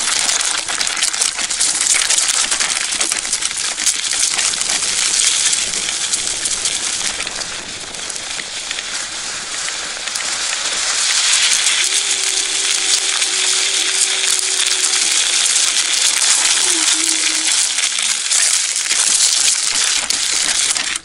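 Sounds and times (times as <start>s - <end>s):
scooter tyres crunching on gravel: 0.0s - 21.0s
thin steady tone: 11.6s - 17.8s.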